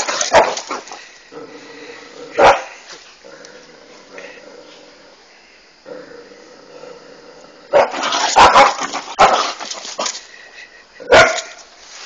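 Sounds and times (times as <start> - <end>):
dog barking: 0.3 - 0.7, 2.4 - 2.7, 7.7 - 9.5, 11.0 - 11.6.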